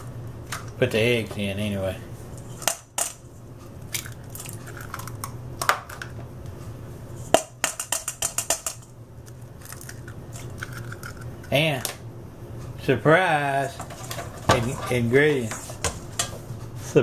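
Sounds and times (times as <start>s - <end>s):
eggs cracking on a metal bowl: 2.6s - 3.2s, 3.8s - 6.2s, 7.3s - 12.0s.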